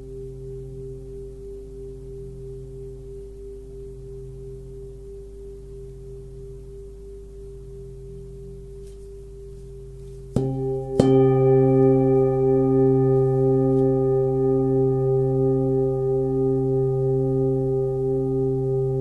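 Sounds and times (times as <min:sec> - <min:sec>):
singing bowl ringing: 0:09.8 - 0:19.0
singing bowl being struck: 0:10.3 - 0:19.0.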